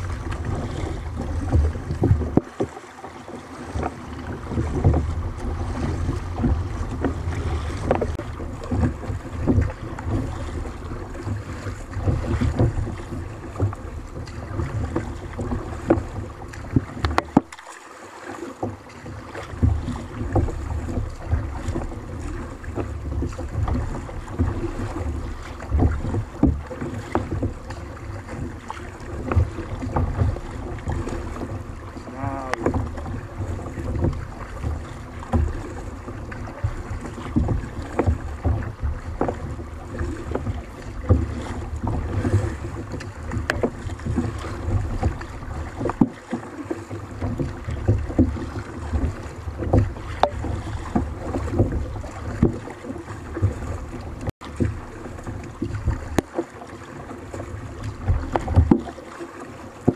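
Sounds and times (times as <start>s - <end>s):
water lapping against hull: 0.0s - 59.9s
knocks on kayak: 3.7s - 10.6s, 22.7s - 27.8s, 29.1s - 46.4s, 47.2s - 54.8s, 57.9s - 58.9s
wind buffeting microphone: 4.0s - 13.5s.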